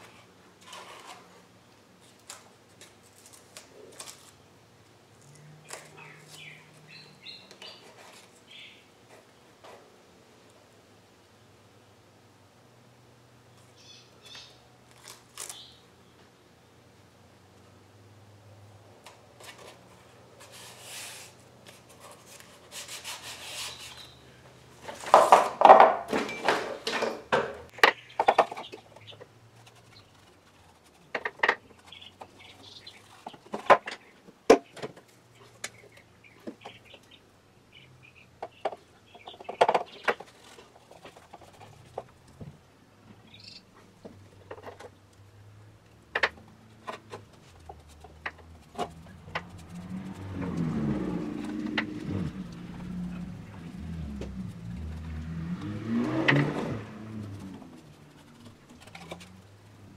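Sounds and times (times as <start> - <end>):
hands rubbing and clicking: 46.9 - 50.6.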